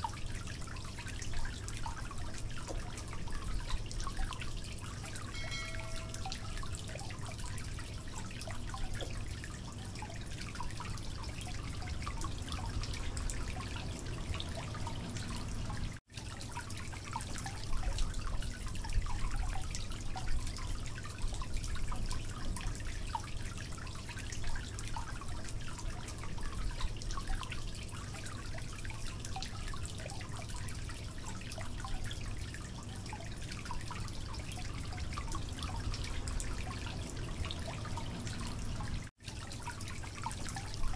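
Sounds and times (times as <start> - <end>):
dripping trickling water: 0.0 - 40.9.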